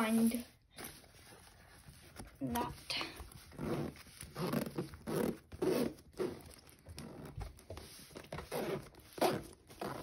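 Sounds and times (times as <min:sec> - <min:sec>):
zipper pulled open in tugs: 0:03.4 - 0:07.6, 0:08.2 - 0:10.0.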